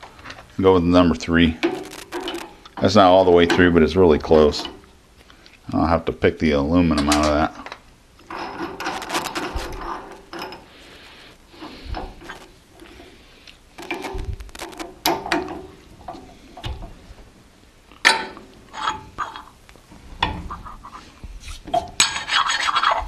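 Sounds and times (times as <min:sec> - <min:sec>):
steel bit rattling against metal: 0:01.6 - 0:02.6, 0:08.3 - 0:10.8, 0:13.7 - 0:15.5.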